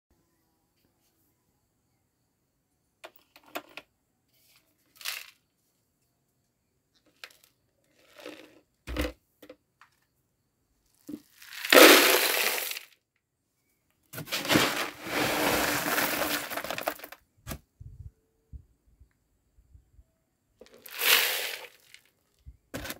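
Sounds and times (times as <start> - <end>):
grain poured into metal bucket: 11.0 - 12.9, 14.2 - 17.2, 20.6 - 22.1.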